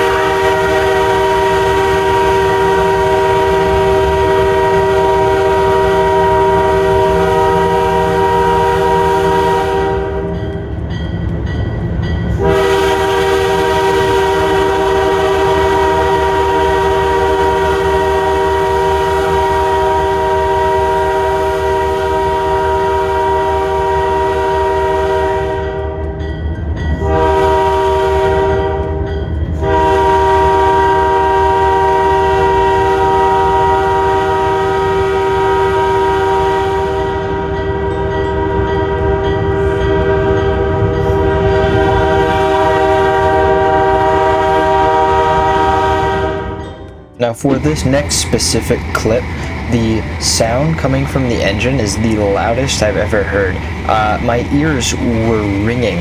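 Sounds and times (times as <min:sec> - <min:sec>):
locomotive air horn: 0:00.0 - 0:10.4, 0:12.4 - 0:26.2, 0:27.0 - 0:46.9
train rumbling on rails: 0:00.0 - 0:56.0.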